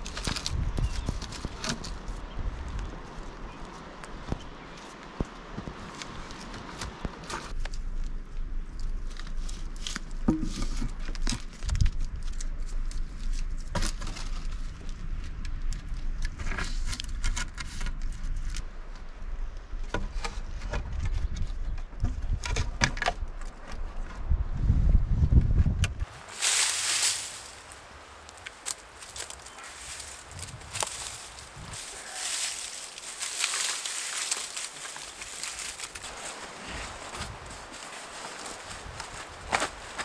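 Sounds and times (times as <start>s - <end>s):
wooden poles knocking together: 10.2s - 11.8s.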